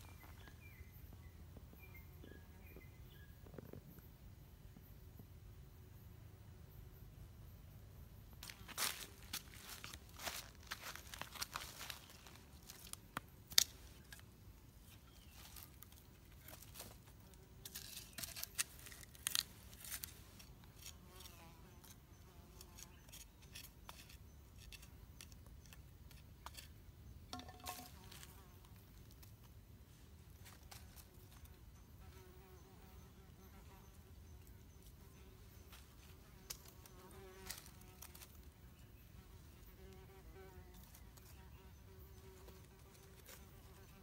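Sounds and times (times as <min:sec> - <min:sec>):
faint insects buzzing: 0:00.0 - 0:44.0
dry sticks crackling and snapping: 0:08.4 - 0:14.3, 0:17.6 - 0:20.9.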